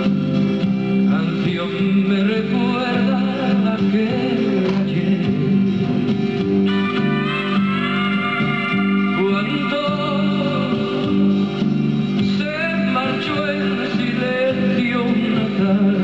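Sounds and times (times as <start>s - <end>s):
acoustic guitar: 0.0s - 16.0s
man singing a slow ballad: 1.1s - 6.1s, 8.7s - 11.5s, 12.3s - 16.0s.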